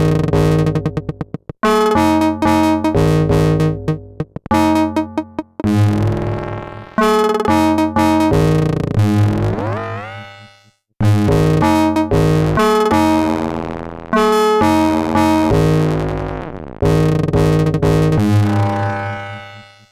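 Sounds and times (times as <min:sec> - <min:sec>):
synthesizer notes in choppy rhythm: 0:00.0 - 0:19.9.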